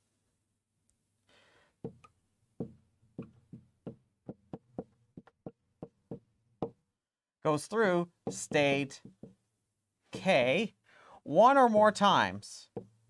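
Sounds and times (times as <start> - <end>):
marker tapping on a whiteboard: 1.8 - 6.8, 8.2 - 9.5, 10.1 - 10.4, 12.7 - 13.0.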